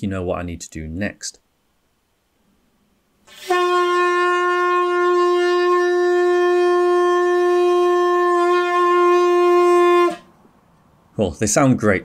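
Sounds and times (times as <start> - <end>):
person blowing a handlebar horn: 3.3 - 10.3.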